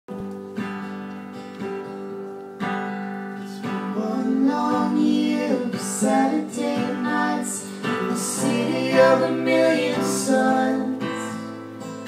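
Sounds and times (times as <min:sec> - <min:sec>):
acoustic guitar strumming: 0:00.1 - 0:12.0
person singing: 0:03.4 - 0:11.5.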